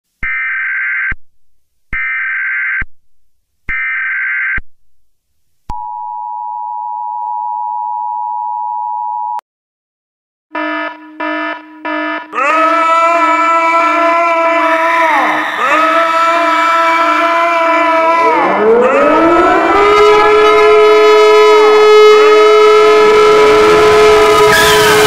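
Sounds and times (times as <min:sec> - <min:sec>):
two-tone attention signal: 0:10.5 - 0:12.3.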